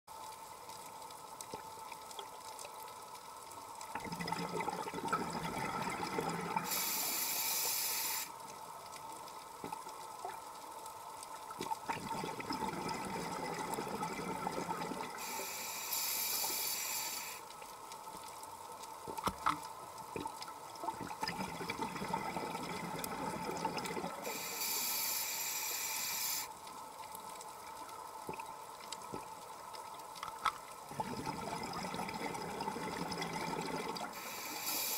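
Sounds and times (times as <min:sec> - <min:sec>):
diver breathing through regulator: 0:06.6 - 0:08.3, 0:15.2 - 0:17.4, 0:24.2 - 0:26.5, 0:34.1 - 0:34.9.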